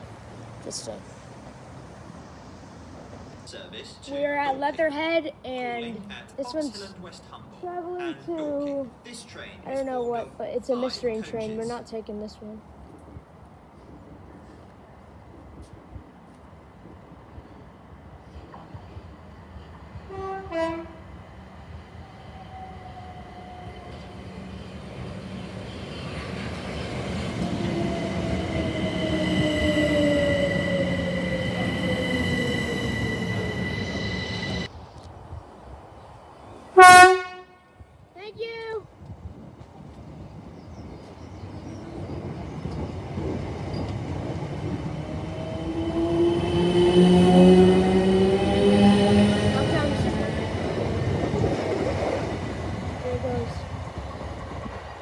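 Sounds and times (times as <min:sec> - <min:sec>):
train rumble: 0:00.0 - 0:35.9, 0:38.4 - 0:55.0
two-tone train horn: 0:20.1 - 0:21.1, 0:36.8 - 0:37.8.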